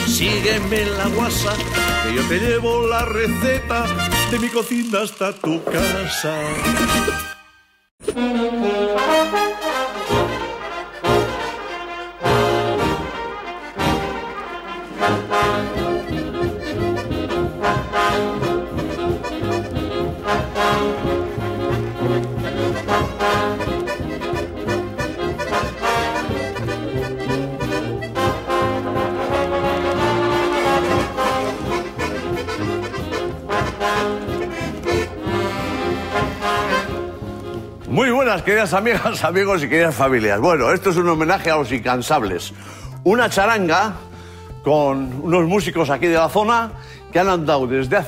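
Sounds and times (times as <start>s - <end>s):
bass beat: 0.0s - 4.5s, 15.4s - 38.7s
brass band playing lively tune: 0.0s - 7.4s, 8.1s - 41.6s.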